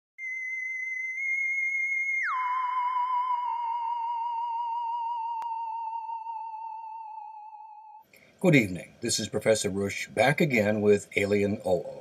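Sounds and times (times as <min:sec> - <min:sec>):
sliding electronic tone: 0:01.2 - 0:08.0.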